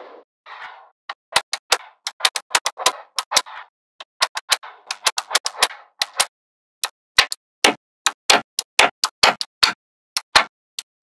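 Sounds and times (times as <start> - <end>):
magnetic balls clicking together: 4.0 - 10.9.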